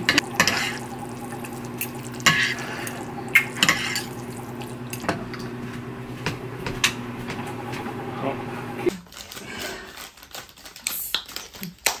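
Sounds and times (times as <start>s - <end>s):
utensils clinking on ceramic bowl: 0.0s - 5.5s
steady low hum: 0.0s - 8.9s.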